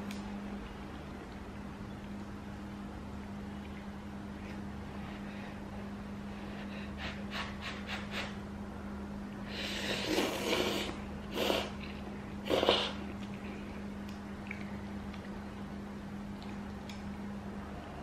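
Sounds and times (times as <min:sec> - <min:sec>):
slurping noodles: 0:09.6 - 0:13.0.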